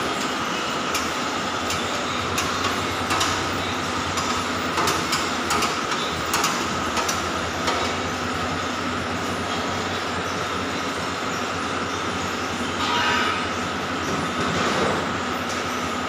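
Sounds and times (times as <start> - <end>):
mechanical running noise: 0.0 - 16.0
sharp metallic clicks: 2.4 - 3.5, 4.1 - 8.0.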